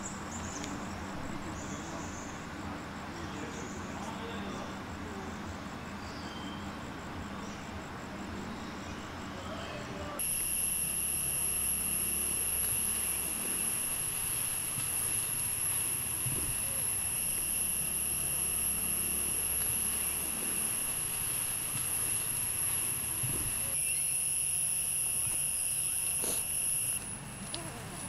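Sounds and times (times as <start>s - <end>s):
high-pitched insect chorus: 10.2s - 27.2s.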